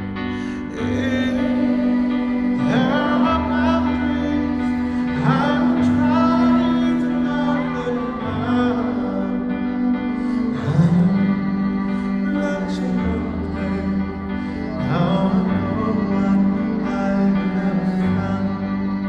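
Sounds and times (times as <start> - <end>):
man singing a slow ballad: 0.0 - 19.0.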